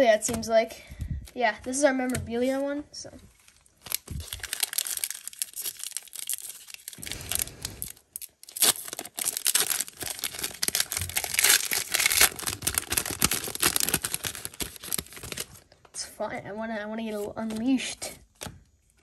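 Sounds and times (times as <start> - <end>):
plastic wrapper crinkling: 3.3 - 15.8
wrapper tearing open: 3.4 - 15.6.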